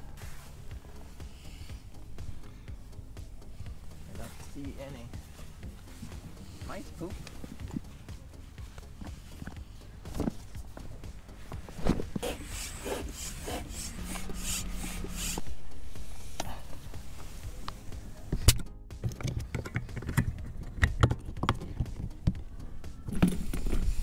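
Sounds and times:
rasping pump strokes: 0.0s - 18.5s
plastic hull rubbing and rustling: 4.0s - 18.5s
clicks and knocks of fittings: 18.3s - 22.4s.

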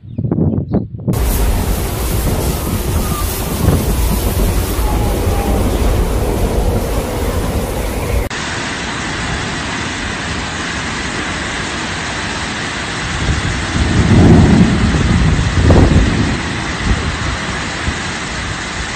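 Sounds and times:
wind rumbling on microphone: 0.0s - 8.4s, 12.9s - 18.9s
heavy rain hissing: 1.2s - 18.9s.

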